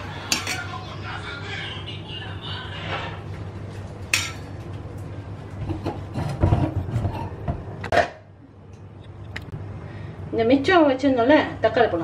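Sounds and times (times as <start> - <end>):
stove flame rumble: 0.0 - 12.0.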